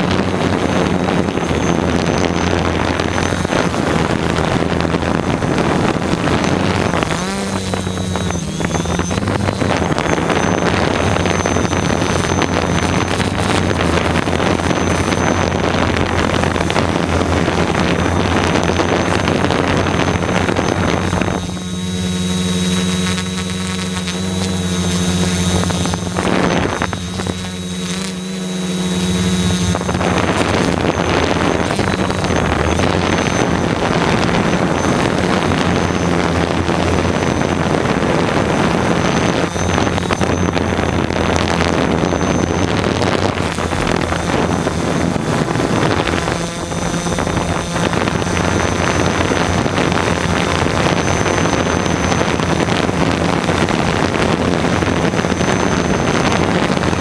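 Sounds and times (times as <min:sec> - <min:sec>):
quadcopter motors running: 0:00.0 - 0:57.0
wind over microphone: 0:00.0 - 0:57.0.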